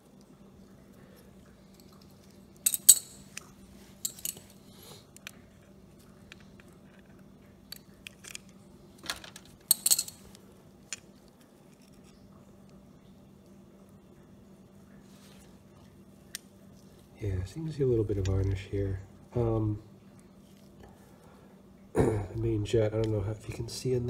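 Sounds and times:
faint low hum: 0:00.0 - 0:24.0
metal parts clicking and clinking: 0:01.7 - 0:05.4, 0:06.3 - 0:11.1.

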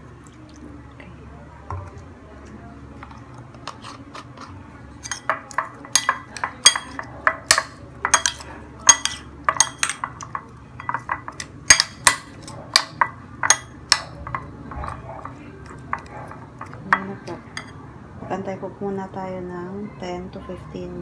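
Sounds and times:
metal spoon clinking glass bowl: 0:05.0 - 0:17.8.

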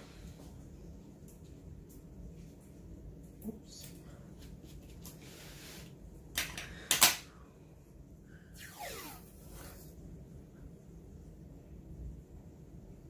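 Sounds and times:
tape pulled with a screech: 0:08.6 - 0:09.8.

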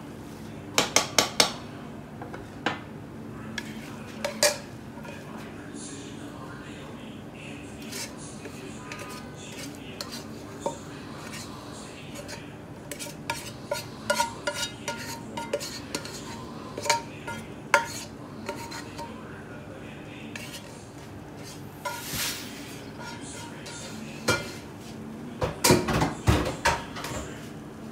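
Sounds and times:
spatula scraping a wok: 0:07.8 - 0:19.1, 0:20.3 - 0:20.8, 0:21.4 - 0:24.7.

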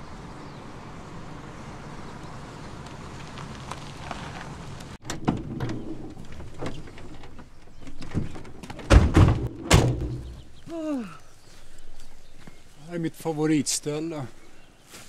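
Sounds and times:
low car hum: 0:00.0 - 0:05.0
car doors opening and shutting: 0:08.0 - 0:10.4
car door slams: 0:08.9 - 0:10.4.

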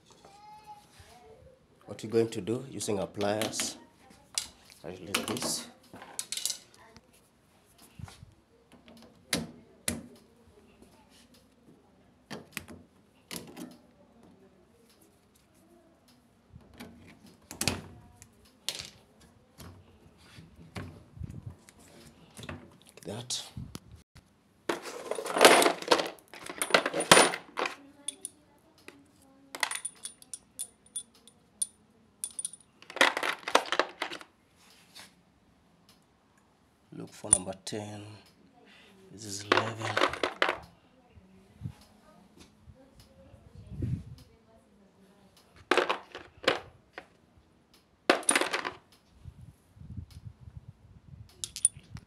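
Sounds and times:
soft handling noises: 0:00.0 - 0:01.6, 0:03.1 - 0:09.3, 0:10.1 - 0:35.2, 0:38.2 - 0:47.3
metal sockets clinking and rattling: 0:24.7 - 0:28.4, 0:29.6 - 0:34.2, 0:45.7 - 0:46.7, 0:48.1 - 0:48.8, 0:51.4 - 0:52.0.

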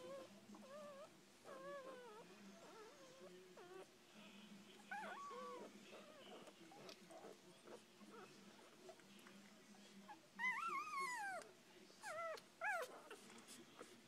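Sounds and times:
puppies squeaking and whimpering: 0:00.0 - 0:03.9, 0:04.9 - 0:08.3, 0:10.1 - 0:11.4, 0:12.0 - 0:13.9.

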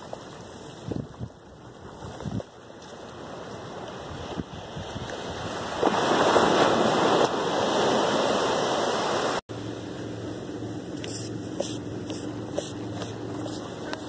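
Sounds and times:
waves washing up a beach: 0:00.0 - 0:10.4
low machine hum: 0:09.5 - 0:14.0.

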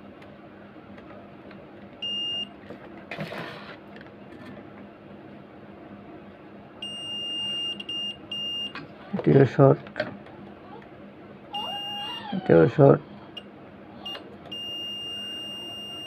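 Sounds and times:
multimeter continuity beeps: 0:02.0 - 0:02.5, 0:06.8 - 0:08.8, 0:11.6 - 0:12.1, 0:14.1 - 0:16.0.

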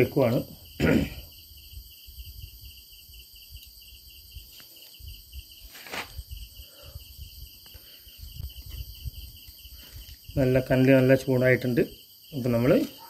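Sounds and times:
insects chirping: 0:00.0 - 0:13.0
brief scraping noise: 0:05.7 - 0:06.2.

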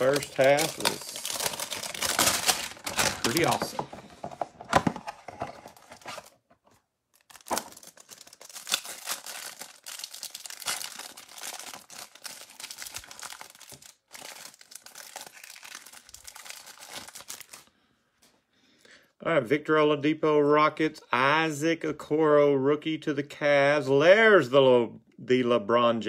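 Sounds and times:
cellophane wrapper crinkling and tearing: 0:00.0 - 0:03.8, 0:05.5 - 0:06.4, 0:07.1 - 0:17.7.

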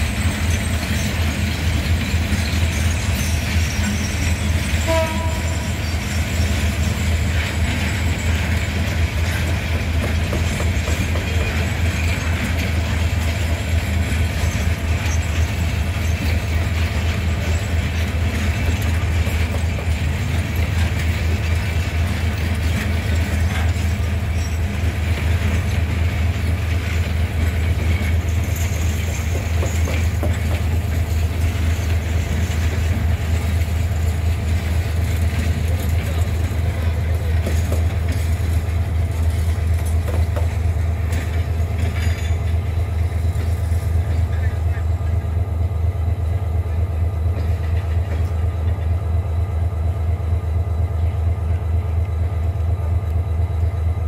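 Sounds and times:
diesel locomotive engine rumbling: 0:00.0 - 0:54.0.

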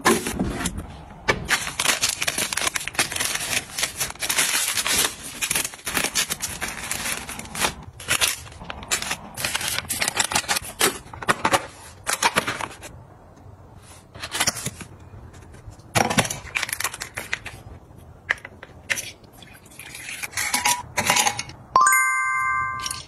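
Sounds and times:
drink sachets crinkling: 0:01.5 - 0:11.2.

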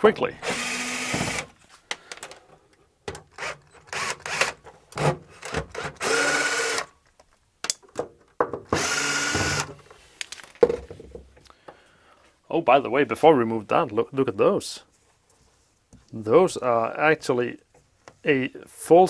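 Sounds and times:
cordless drill whirring: 0:00.4 - 0:01.5, 0:03.4 - 0:04.6, 0:05.7 - 0:06.9, 0:08.8 - 0:09.7.

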